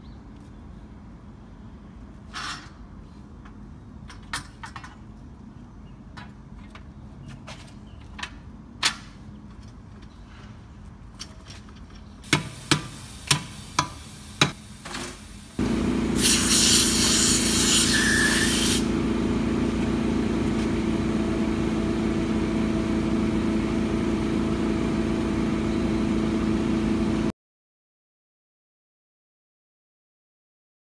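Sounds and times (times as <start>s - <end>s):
rushing air hiss: 12.3s - 18.9s
machine hum: 15.6s - 27.3s.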